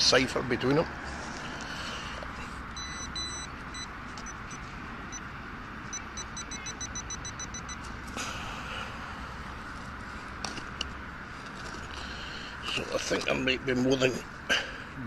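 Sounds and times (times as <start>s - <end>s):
metal detector beeping: 2.7s - 5.2s, 5.8s - 7.9s.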